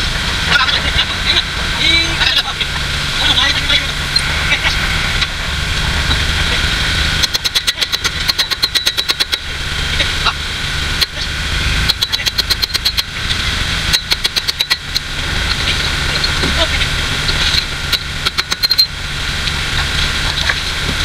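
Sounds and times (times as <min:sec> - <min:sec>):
tractor diesel engine running: 0:00.0 - 0:21.0
rapid even ticking: 0:07.2 - 0:09.5, 0:11.0 - 0:15.6, 0:17.3 - 0:18.9.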